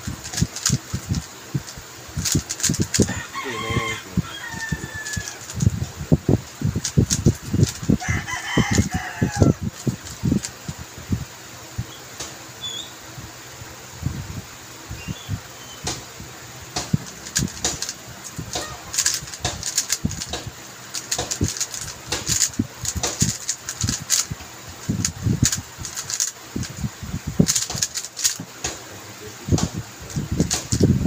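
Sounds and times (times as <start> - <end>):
puzzle cube clicking: 0.0 - 10.6, 16.7 - 28.8, 29.5 - 31.0.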